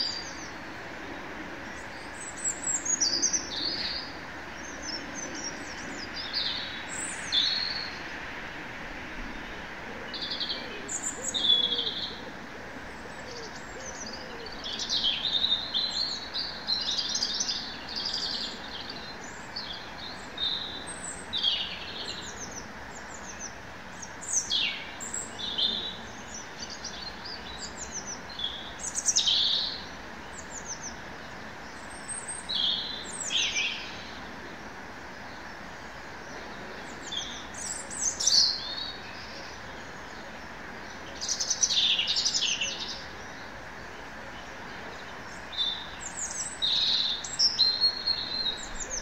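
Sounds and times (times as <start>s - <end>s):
songbirds chirping and singing: 0.0s - 49.0s
steady background hiss: 0.0s - 49.0s.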